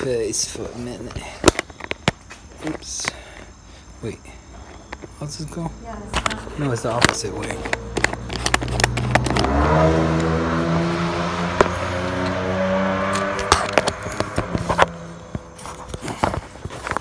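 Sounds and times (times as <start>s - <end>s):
sharp clicks and knocks: 6.1s - 9.6s
vehicle engine running: 6.2s - 17.0s.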